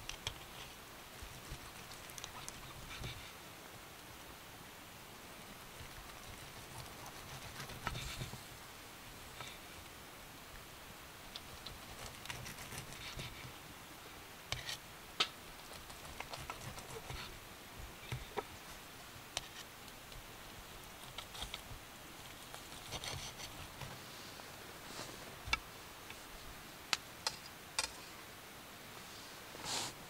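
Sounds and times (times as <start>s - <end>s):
soft rustling: 5.5s - 10.0s, 15.5s - 26.6s.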